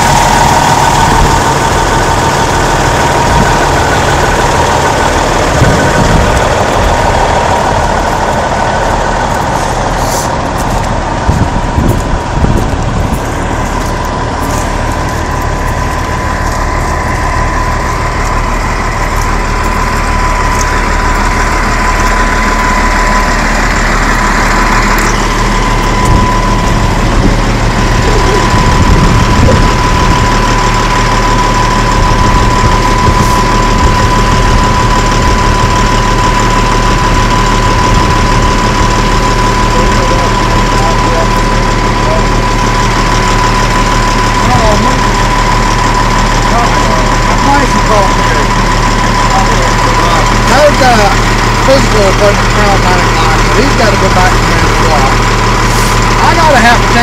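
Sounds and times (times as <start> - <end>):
diesel truck engine idling: 0.0 - 57.0.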